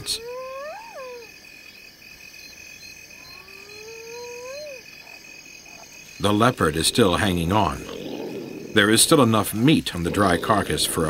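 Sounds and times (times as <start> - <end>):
high insect chirring: 0.0 - 11.0
long whistling animal call: 3.2 - 4.9.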